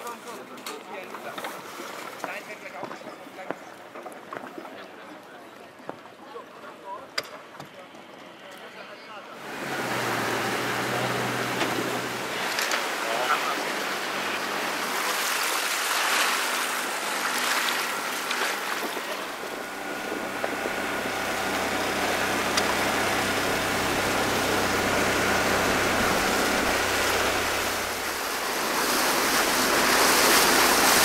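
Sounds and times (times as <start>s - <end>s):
wind: 0.0s - 31.0s
outboard motor running: 9.4s - 31.0s
water noise: 9.4s - 31.0s.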